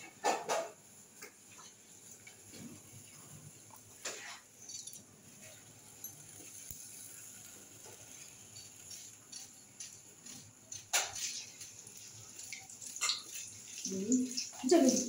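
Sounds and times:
sharp utensil clatter: 4.0s - 5.0s, 12.4s - 15.0s.

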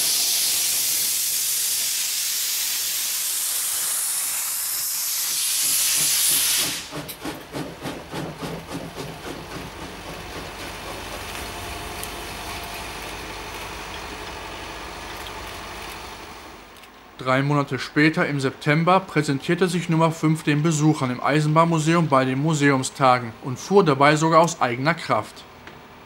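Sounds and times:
steam hissing loudly: 0.0s - 15.0s
steam locomotive exhaust chuffing: 0.0s - 16.7s.

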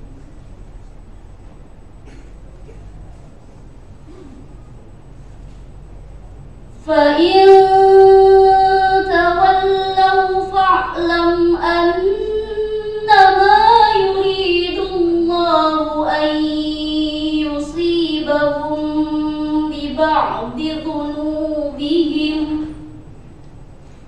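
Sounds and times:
girl reciting melodically: 6.8s - 23.1s.

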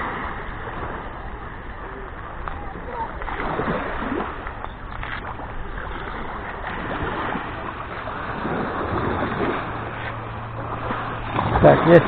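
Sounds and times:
small waves breaking on shore: 0.0s - 12.0s.

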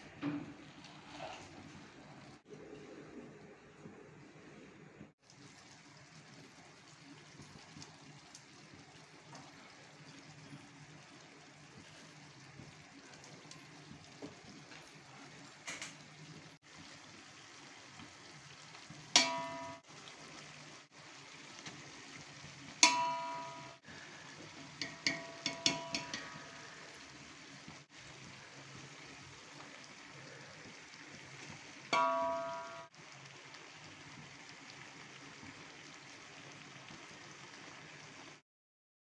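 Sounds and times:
spoon knocking steel pot: 19.2s - 19.8s, 22.8s - 23.8s, 24.8s - 26.7s, 32.0s - 32.9s.

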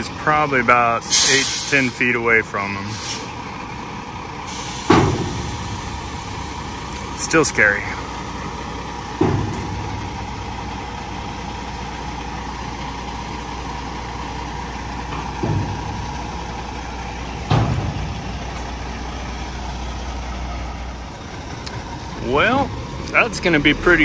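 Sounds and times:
diesel truck engine running: 0.0s - 24.0s
heavy thumps: 8.5s - 10.8s, 15.0s - 16.7s, 17.3s - 18.9s.

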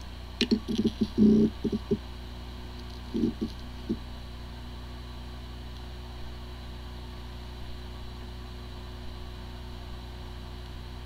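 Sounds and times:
hard drive spinning hum: 0.0s - 11.0s.

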